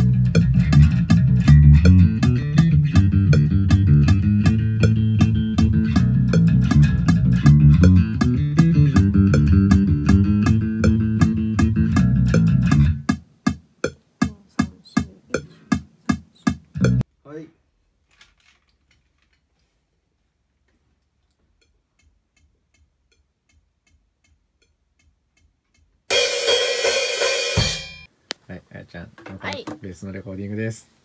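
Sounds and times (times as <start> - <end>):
electric bass guitar: 0.0 - 13.1, 16.7 - 17.0.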